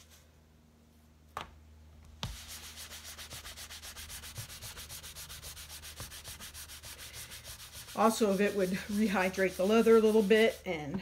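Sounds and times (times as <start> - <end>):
cloth rubbing leather: 2.2 - 10.9.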